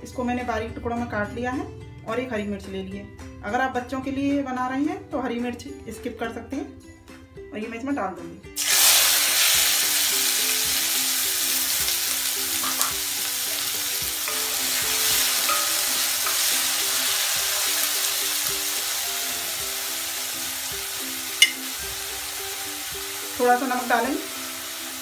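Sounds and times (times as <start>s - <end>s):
vegetables sizzling in hot oil: 8.6s - 25.0s.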